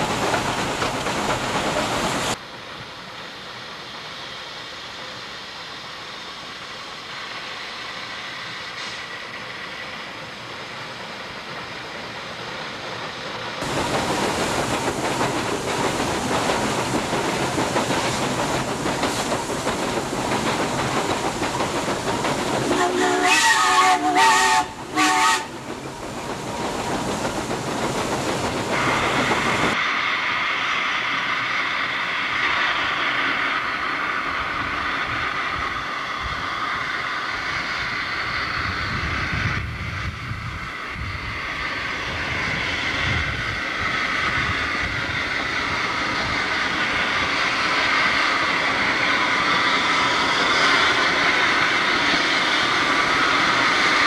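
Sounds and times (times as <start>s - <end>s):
hissing steam: 0.0s - 54.0s
train rushing noise: 0.0s - 54.0s
steam locomotive whistle: 22.7s - 25.6s.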